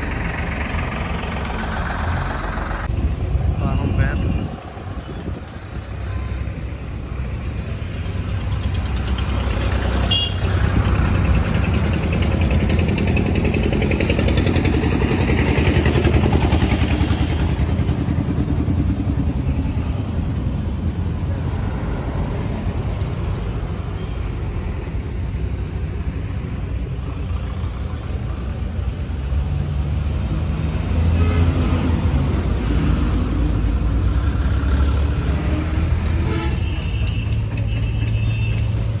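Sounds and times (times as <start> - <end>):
tractor diesel engine idling: 0.0 - 2.9.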